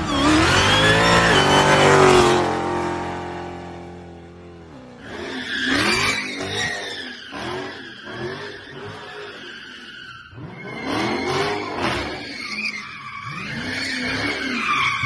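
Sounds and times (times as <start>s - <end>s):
tyres squealing on concrete: 0.0s - 2.4s, 5.0s - 15.0s
car engine revving: 0.0s - 9.1s.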